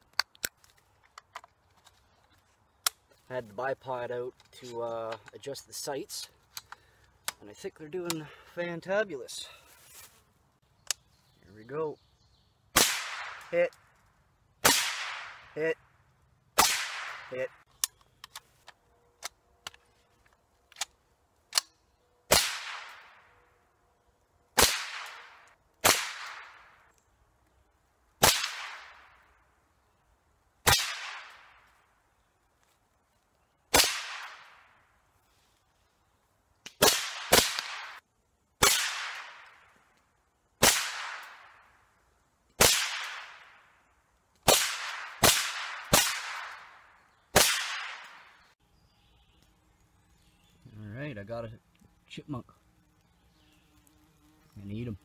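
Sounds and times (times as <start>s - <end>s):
rifle shots: 12.8s - 13.6s, 14.6s - 15.4s, 16.6s - 17.5s, 22.3s - 23.2s, 24.6s - 26.6s, 28.2s - 29.1s, 30.6s - 31.5s, 33.7s - 34.6s, 36.8s - 38.0s, 38.6s - 39.5s, 40.6s - 41.6s, 42.6s - 43.5s, 44.5s - 48.4s.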